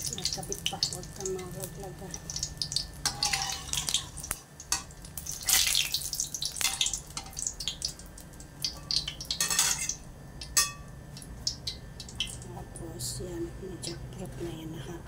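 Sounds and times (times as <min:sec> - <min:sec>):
food frying and crackling in oil: 0:00.0 - 0:14.0
metal spatula scraping pan: 0:03.0 - 0:04.2.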